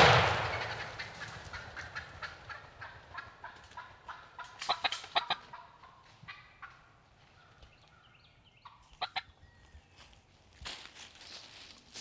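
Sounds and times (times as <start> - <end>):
turkey gobbling: 0.3 - 7.5, 8.6 - 9.3.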